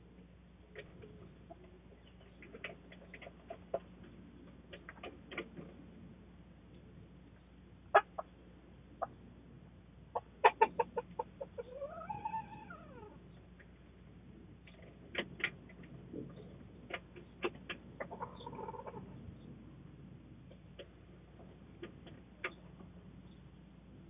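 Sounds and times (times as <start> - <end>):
chickens clucking: 0.7 - 5.8, 7.3 - 9.4, 10.1 - 14.0, 14.6 - 19.4, 20.5 - 23.4.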